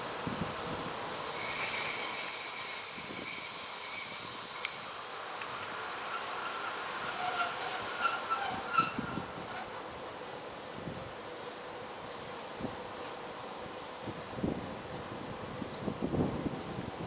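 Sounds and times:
train wheels squealing on rails: 0.0s - 12.4s.

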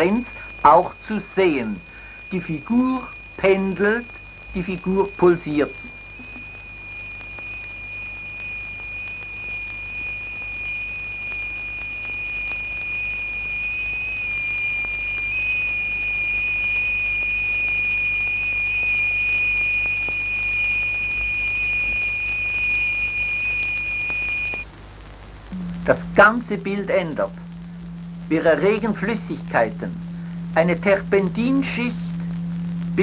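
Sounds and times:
high beating electronic tone: 0.0s - 11.9s, 25.5s - 33.0s.

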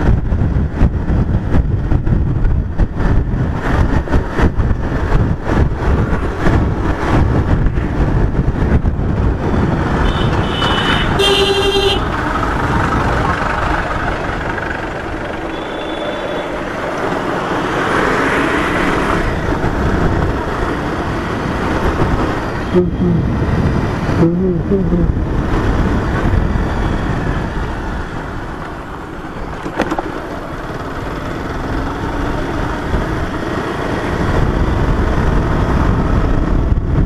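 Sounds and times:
motorcycle running: 0.0s - 37.0s
wind buffeting microphone: 0.0s - 37.0s
short horn toot: 10.0s - 12.1s.

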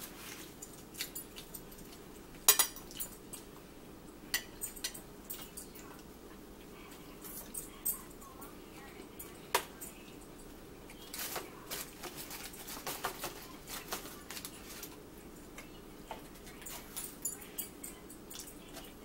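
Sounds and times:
chewing clicks and crackles: 0.5s - 3.6s.

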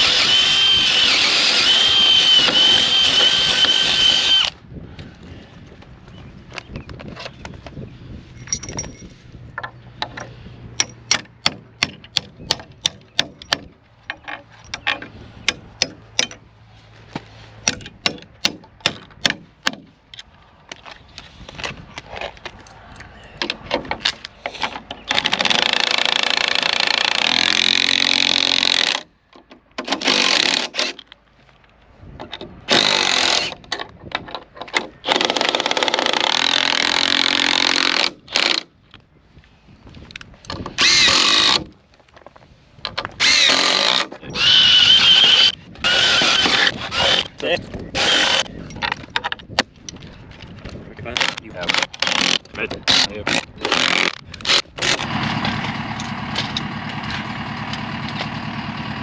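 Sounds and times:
cordless impact driver: 0.0s - 4.6s, 25.1s - 29.1s, 29.8s - 31.0s, 32.7s - 33.6s, 40.6s - 41.7s, 43.2s - 48.5s, 51.2s - 57.3s
hammer tapping metal bolts: 17.7s - 19.9s.

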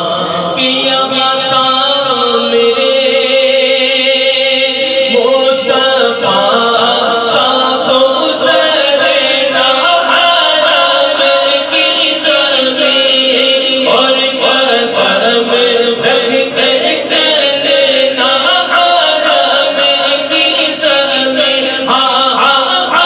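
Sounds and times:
man singing devotional hymn: 0.0s - 23.0s.

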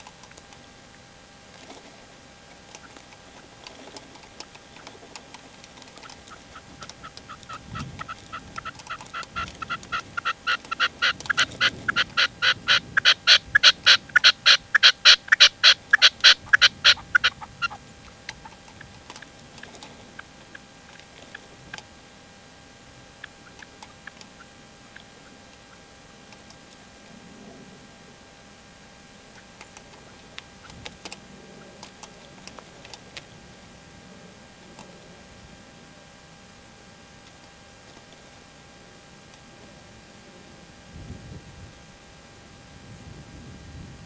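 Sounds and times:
partridge calling: 5.8s - 21.8s, 23.1s - 25.9s.

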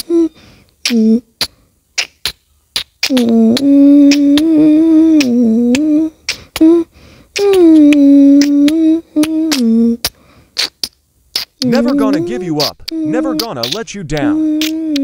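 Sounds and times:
person humming: 0.0s - 1.4s, 3.0s - 10.7s, 11.6s - 15.0s
sharp clicks: 11.7s - 15.0s.

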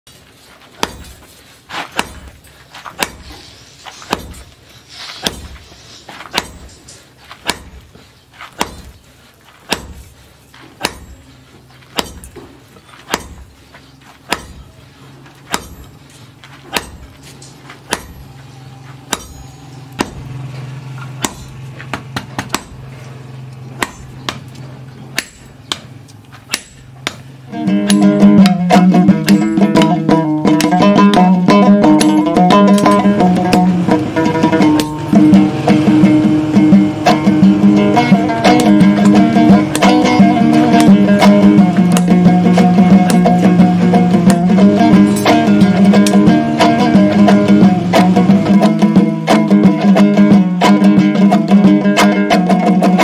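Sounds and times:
sledgehammer ringing on anvil: 6.3s - 7.8s, 10.8s - 11.4s, 12.0s - 12.4s, 13.1s - 13.5s, 14.3s - 14.8s, 15.4s - 20.4s, 23.8s - 24.4s.

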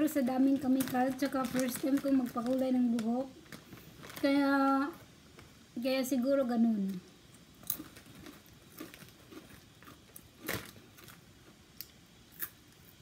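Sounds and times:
potato chips crunching: 7.6s - 12.6s.

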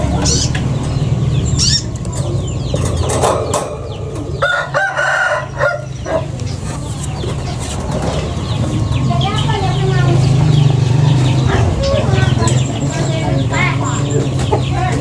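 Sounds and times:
steady low hum: 0.0s - 14.9s
chickens clucking: 0.0s - 15.0s
small birds chirping: 0.0s - 15.0s
rooster crowing: 4.3s - 6.2s.

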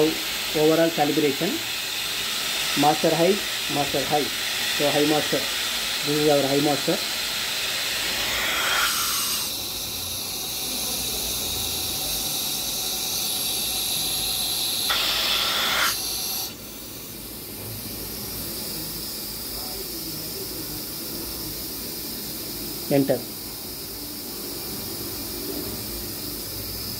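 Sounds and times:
compressed air hissing: 0.0s - 26.9s.

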